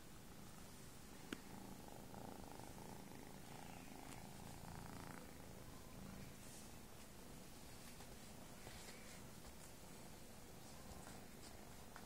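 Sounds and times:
kitten purring: 1.3 - 6.4.

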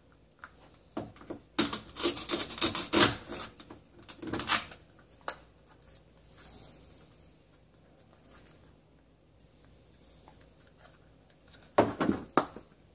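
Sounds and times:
velcro ripping apart: 1.6 - 3.5.

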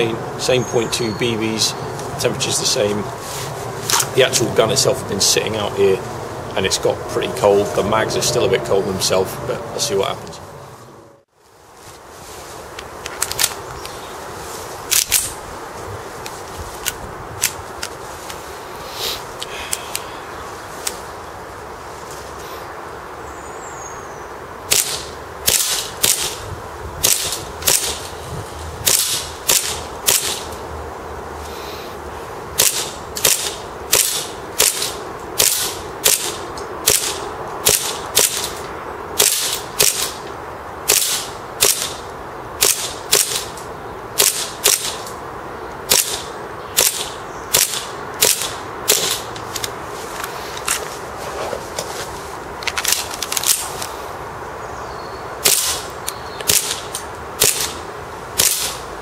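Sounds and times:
airsoft pistol shots: 24.7 - 26.4, 28.9 - 30.4, 32.6 - 38.5, 40.9 - 42.0, 45.9 - 49.2, 55.4 - 55.8, 58.4 - 58.8.

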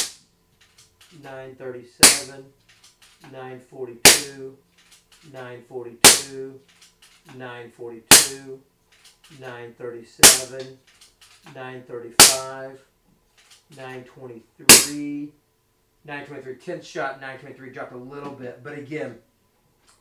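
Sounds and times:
air rifle shots cracking: 6.0 - 6.4, 10.2 - 10.6, 12.2 - 12.5.

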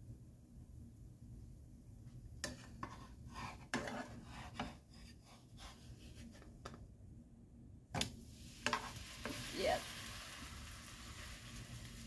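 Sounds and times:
spatula scraping frying pan: 2.4 - 6.6, 8.6 - 10.2.

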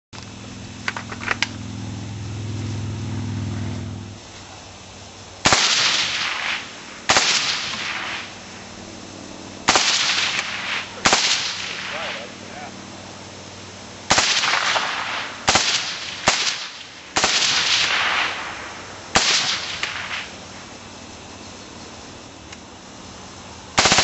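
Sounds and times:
suppressed rifle shots: 5.4 - 8.4, 9.7 - 12.3, 14.1 - 20.4, 23.8 - 24.0.

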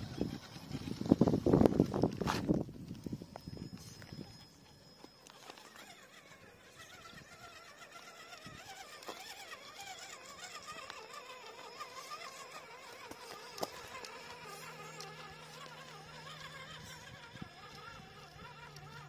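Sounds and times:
electric motor whining: 0.0 - 19.0.

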